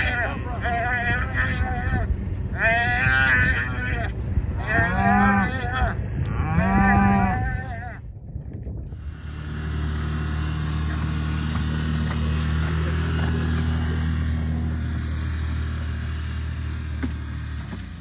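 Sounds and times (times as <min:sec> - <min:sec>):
utility vehicle engine humming: 0:00.0 - 0:06.5, 0:08.6 - 0:18.0
calves bawling: 0:00.0 - 0:08.1.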